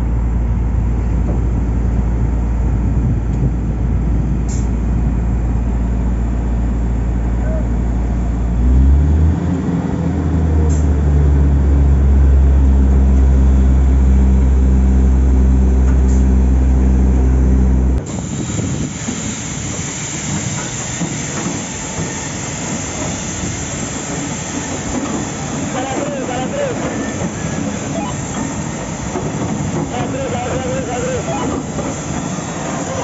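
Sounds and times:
diesel engine droning: 0:00.0 - 0:18.3, 0:25.0 - 0:33.0
broad noisy rumble: 0:00.0 - 0:19.8, 0:25.0 - 0:33.0.

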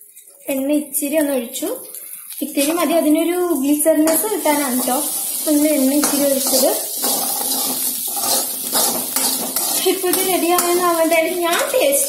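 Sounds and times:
metal spoon scraping a metal pan: 0:04.0 - 0:12.0.

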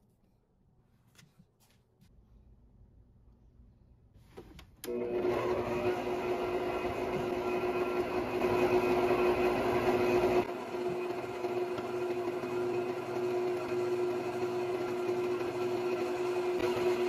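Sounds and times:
stand mixer motor humming: 0:04.9 - 0:17.0.

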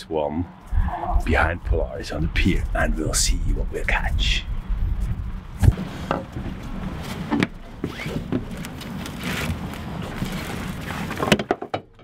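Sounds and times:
steady low rumble: 0:00.7 - 0:08.8.

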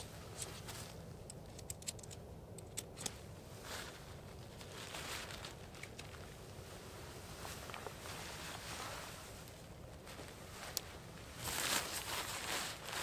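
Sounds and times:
tent fabric rustling: 0:00.0 - 0:01.0, 0:03.1 - 0:13.0
low background rumble: 0:00.0 - 0:13.0
tent pole clicks and taps: 0:00.4 - 0:03.2.

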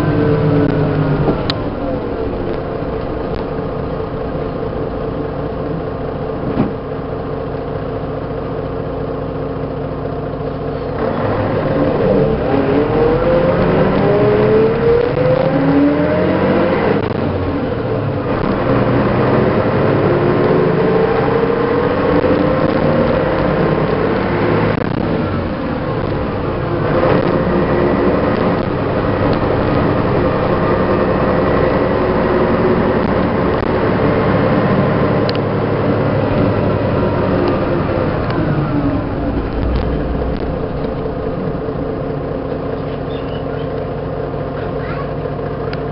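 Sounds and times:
bus diesel engine accelerating: 0:00.0 - 0:45.9.

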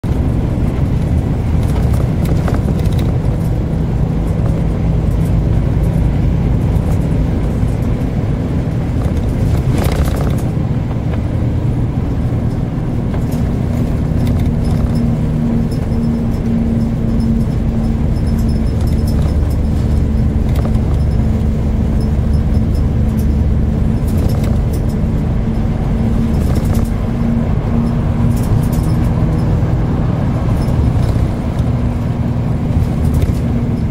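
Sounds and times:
tyre and engine drone in car: 0:00.0 - 0:33.9.

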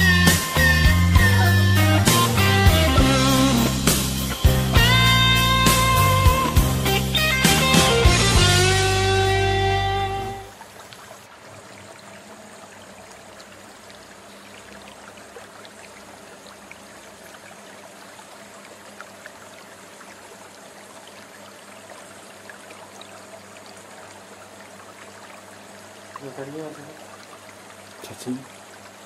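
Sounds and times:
water trickling into tank: 0:10.3 - 0:29.0
water drips: 0:10.4 - 0:29.0.

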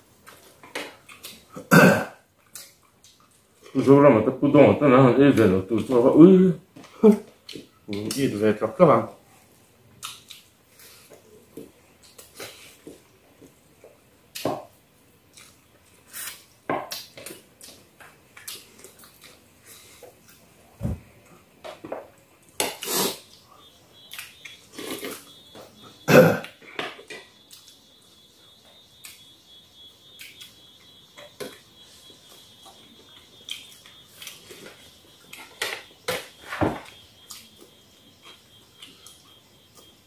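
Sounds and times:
faint high whine: 0:18.8 - 0:40.0.

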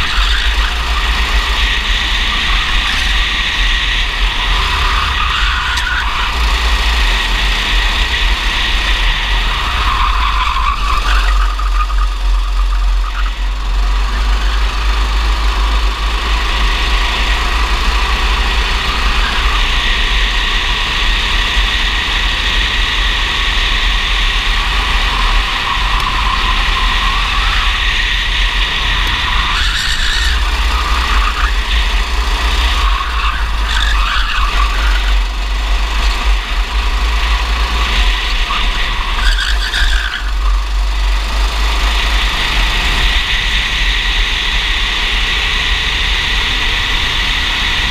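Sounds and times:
kart engine running hard: 0:00.0 - 0:47.9.

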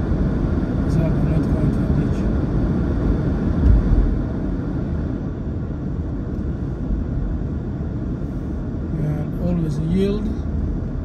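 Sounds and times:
car driving on snowy road: 0:00.0 - 0:11.0
low thump: 0:03.6 - 0:04.2.

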